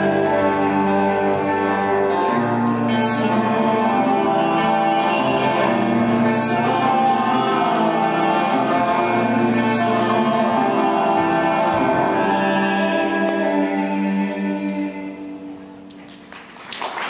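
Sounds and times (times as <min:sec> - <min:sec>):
song with sung vocals: 0:00.0 - 0:16.0
applause: 0:15.9 - 0:17.0.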